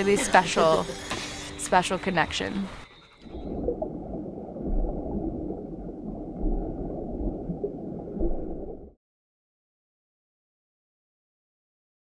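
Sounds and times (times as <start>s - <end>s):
muffled underwater water rushing: 2.8s - 9.0s.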